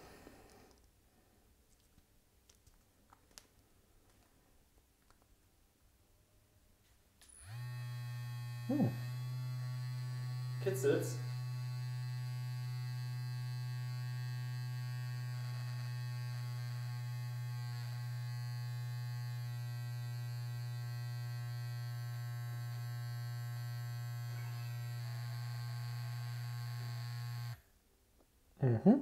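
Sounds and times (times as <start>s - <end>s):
electric toothbrush humming: 7.3s - 27.7s.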